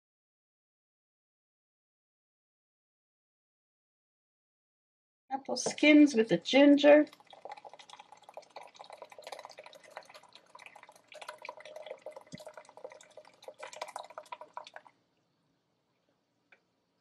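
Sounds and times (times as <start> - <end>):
thick juice pouring and splattering: 7.0 - 14.9.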